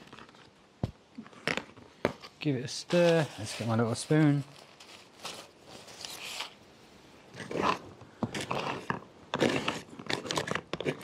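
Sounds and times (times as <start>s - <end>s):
spoon scraping in food pouch: 7.3s - 11.0s.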